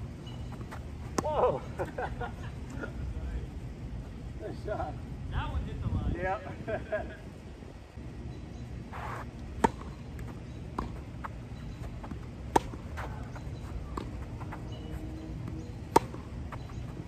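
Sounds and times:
tennis ball bouncing: 9.0s - 17.0s
tennis racket hitting ball: 12.5s - 13.0s.

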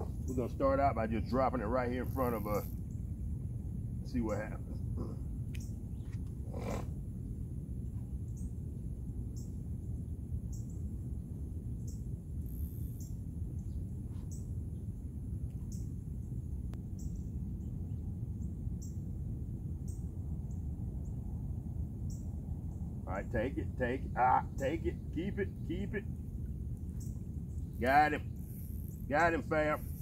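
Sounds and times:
faint high insect buzz: 0.0s - 30.0s
steady low rumble: 0.0s - 30.0s
short high insect chirp: 2.0s - 3.3s, 8.0s - 23.1s, 24.6s - 30.0s.

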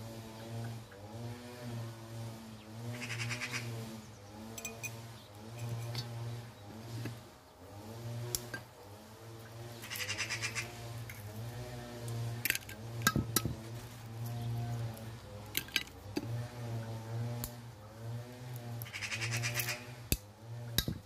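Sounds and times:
eggshells cracking on metal bowl: 12.4s - 13.6s, 15.4s - 16.3s.

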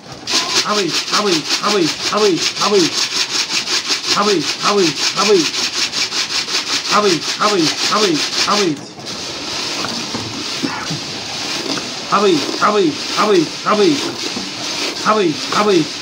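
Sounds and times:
grain shaken in a container: 0.0s - 16.0s
low falling call: 0.3s - 3.0s.

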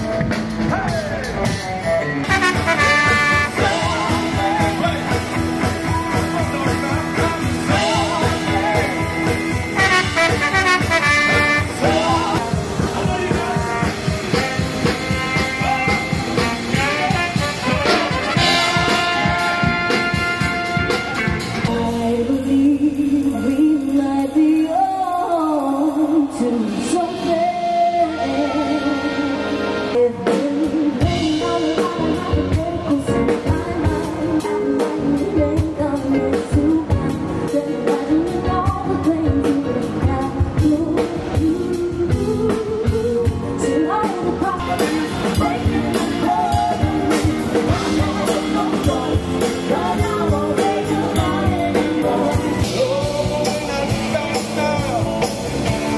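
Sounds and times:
lead melody line: 0.0s - 24.8s
drum kit beat: 0.0s - 28.1s, 30.1s - 55.9s
electric bass: 0.0s - 55.9s
electric guitar: 0.0s - 55.9s.

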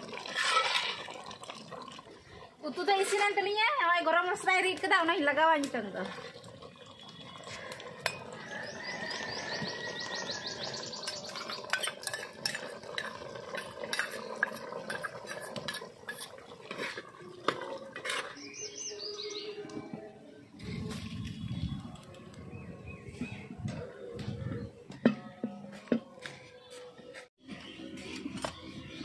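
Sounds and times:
ladle stirring in clay pot: 0.0s - 18.7s.

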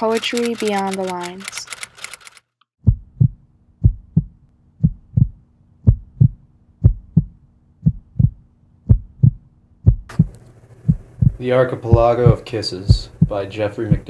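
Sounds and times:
heartbeat thumps: 2.8s - 14.0s
faint low hum: 3.2s - 14.0s.

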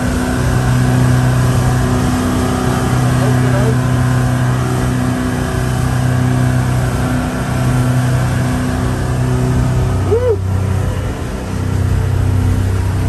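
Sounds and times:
boat engine running: 0.0s - 13.0s
churning wake water: 0.0s - 13.0s.

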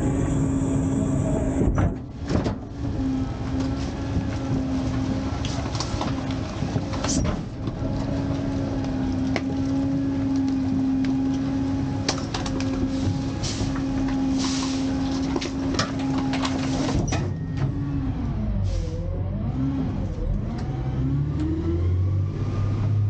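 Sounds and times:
hydraulic whine: 0.0s - 3.6s
truck engine rumble: 0.0s - 23.0s.

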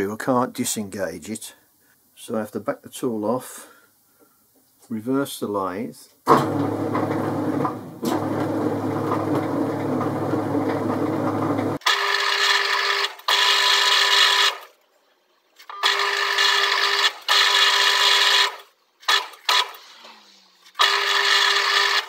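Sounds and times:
lathe running hum: 6.5s - 11.8s.

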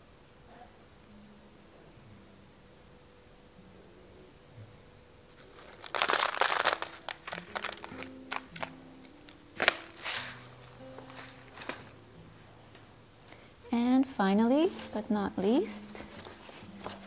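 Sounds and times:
soft background music: 0.0s - 17.0s
paper bag crinkling and rustling: 5.3s - 12.0s, 14.6s - 17.0s
paper sharp crackles: 5.3s - 12.0s.

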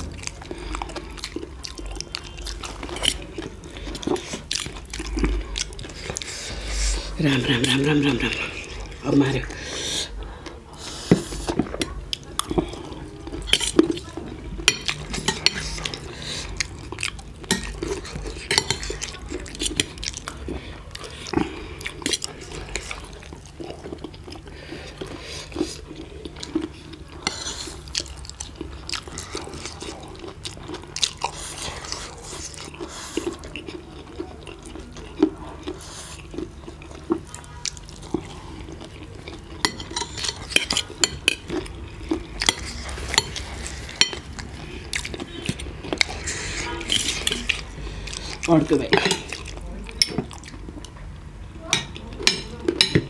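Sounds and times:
cutlery clinking on ceramic plates: 48.9s - 49.3s, 51.7s - 53.0s.

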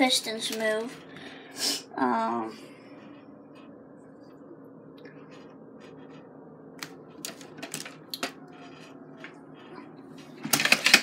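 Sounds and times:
plastic parts clicking and rattling: 7.2s - 8.4s, 10.4s - 11.0s.

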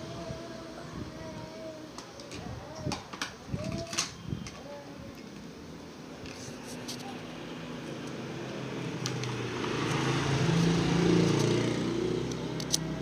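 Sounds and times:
vehicle engine passing by: 7.4s - 13.0s.

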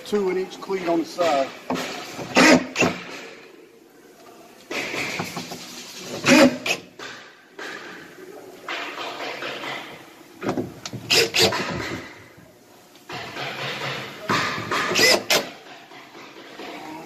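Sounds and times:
cordless drill driving screws: 11.1s - 11.6s, 14.9s - 15.5s.

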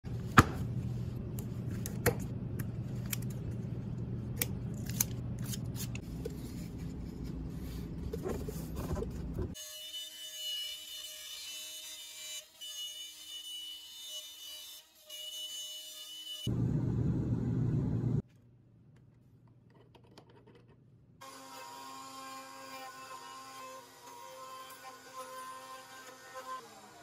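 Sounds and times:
steady low hum: 16.5s - 18.2s.

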